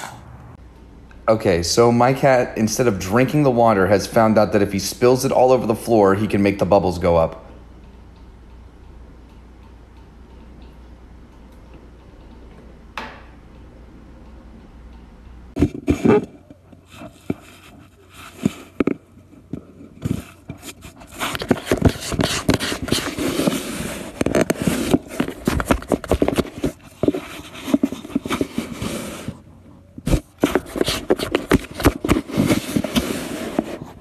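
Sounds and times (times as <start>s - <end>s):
cardboard scraping and crackling: 19.9s - 29.4s, 30.0s - 34.0s.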